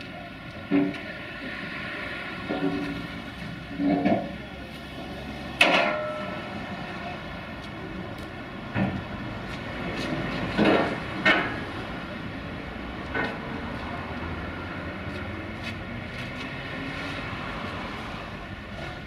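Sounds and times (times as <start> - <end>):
metal ramp rails clanking: 5.6 - 6.5.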